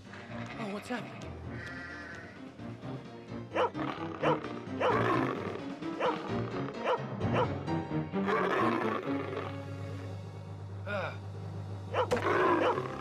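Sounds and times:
background music: 0.0s - 13.0s
dog barking: 3.6s - 5.3s, 6.0s - 7.5s, 11.9s - 12.9s.

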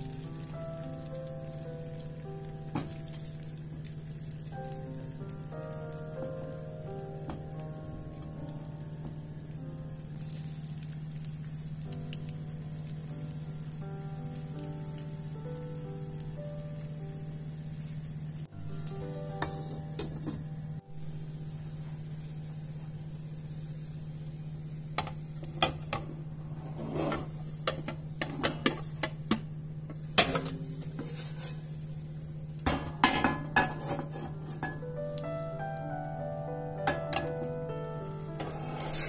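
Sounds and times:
pancake sizzling in a frying pan: 0.0s - 34.9s, 38.3s - 39.0s
plate clinking on a pan: 32.7s - 34.8s.

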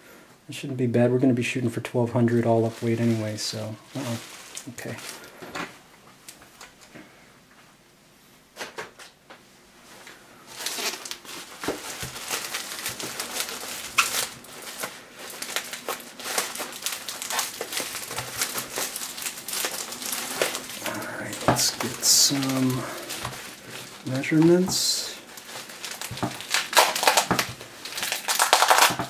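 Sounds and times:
bubble wrap crinkling: 2.2s - 5.4s, 9.8s - 29.0s.

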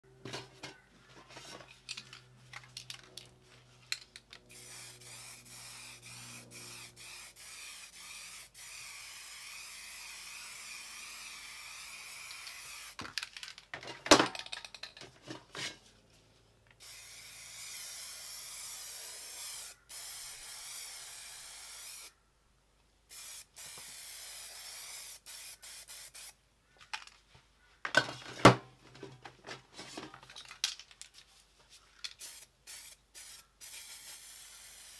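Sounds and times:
spray paint can hissing: 4.5s - 13.0s, 16.8s - 22.1s, 23.1s - 26.4s, 32.2s - 34.9s.

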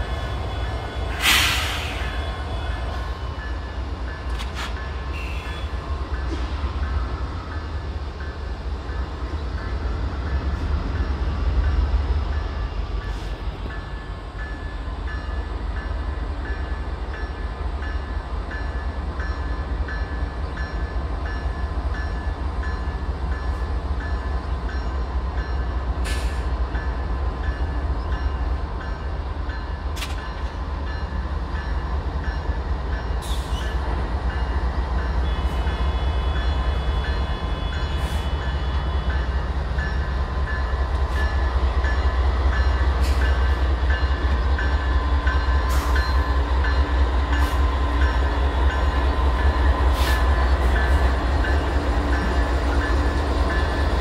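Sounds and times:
diesel locomotives rumbling: 0.0s - 54.0s
locomotive bell dinging: 26.7s - 54.0s.

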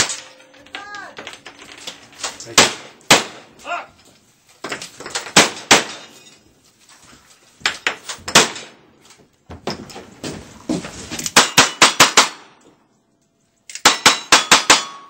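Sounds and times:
gunshots: 2.5s - 3.6s, 5.2s - 6.1s, 8.3s - 8.8s.

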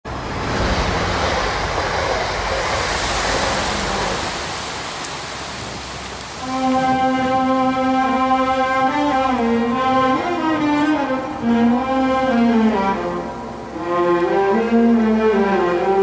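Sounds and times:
steady rushing noise: 0.0s - 16.0s
held bowed string note: 6.4s - 16.0s.

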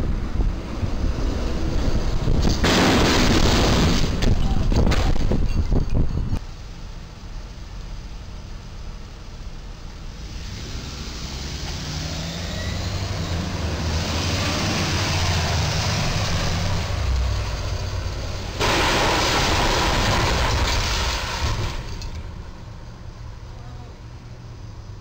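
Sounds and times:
vehicle engines passing: 0.0s - 4.3s, 9.7s - 25.0s
loud rushing noise: 0.0s - 5.2s, 10.2s - 21.9s
truck driving up: 0.0s - 25.0s.

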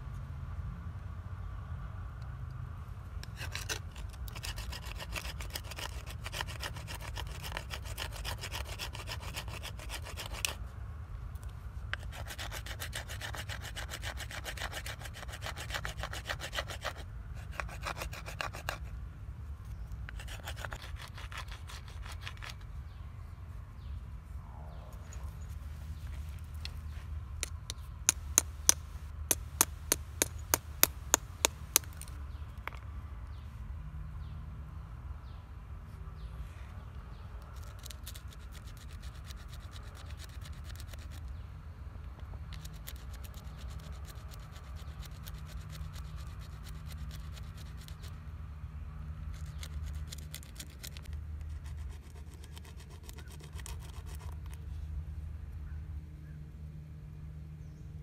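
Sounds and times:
scratchy rasping on rock: 3.2s - 10.6s, 11.9s - 18.9s, 20.1s - 22.6s, 27.4s - 32.1s, 37.6s - 41.3s, 42.5s - 48.2s, 49.3s - 54.6s
stone knocking on stone: 27.4s - 32.1s.

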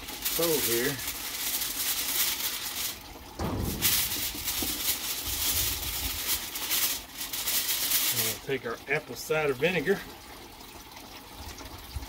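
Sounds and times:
aluminium foil crinkling: 0.0s - 8.8s
soft thump: 3.4s - 4.8s.

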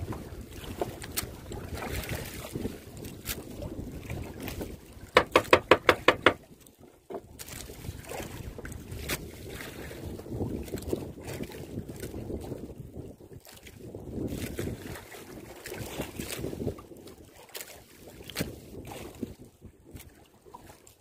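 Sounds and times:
sea water around boat: 0.0s - 21.0s
wind on microphone: 0.0s - 21.0s
loud knocks: 5.2s - 6.4s.

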